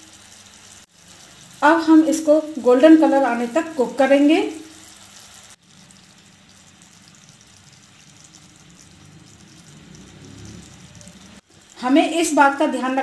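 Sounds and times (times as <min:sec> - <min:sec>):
syrup bubbling in a pan: 0:00.0 - 0:13.0.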